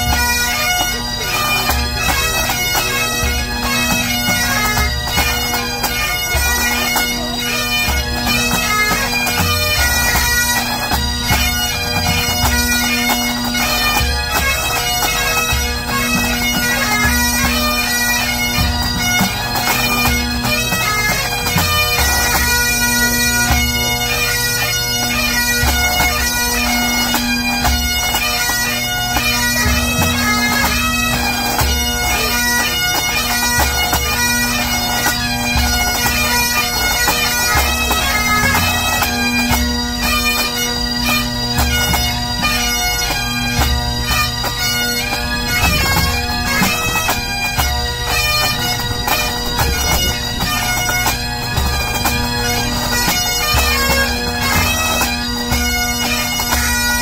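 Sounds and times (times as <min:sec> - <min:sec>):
bagpipes playing melody: 0:00.0 - 0:57.0
snare and tenor drums beating: 0:43.6 - 0:56.5
bass drum thumping: 0:45.1 - 0:55.2.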